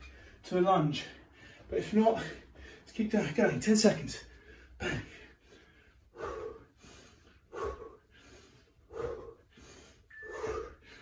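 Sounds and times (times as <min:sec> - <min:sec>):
man breathing hard: 0:04.2 - 0:11.0.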